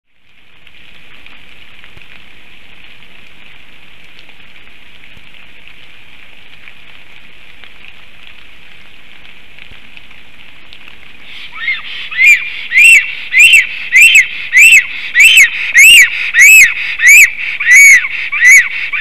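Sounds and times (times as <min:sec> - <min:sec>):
heavy rain: 0:00.1 - 0:19.0.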